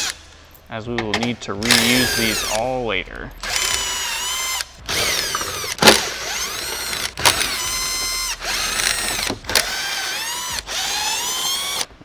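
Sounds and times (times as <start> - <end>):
cordless drill motor whine: 3.4 - 11.9.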